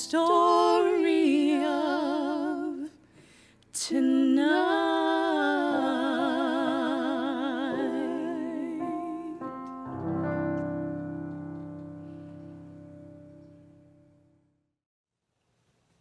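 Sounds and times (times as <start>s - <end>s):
piano: 0.0s - 2.9s, 4.4s - 14.7s
women singing in harmony: 0.0s - 3.0s, 3.8s - 9.6s
quick breath: 3.0s - 3.7s.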